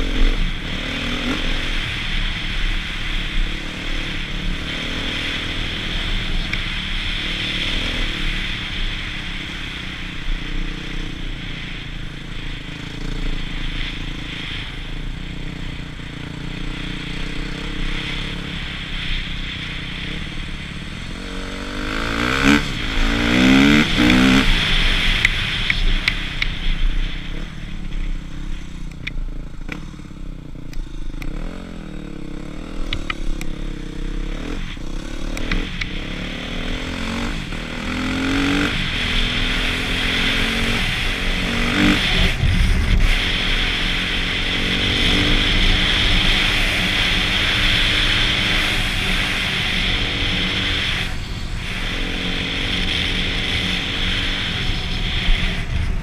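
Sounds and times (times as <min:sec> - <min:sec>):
motocross engine revving: 0:21.0 - 0:26.2, 0:33.9 - 0:56.0.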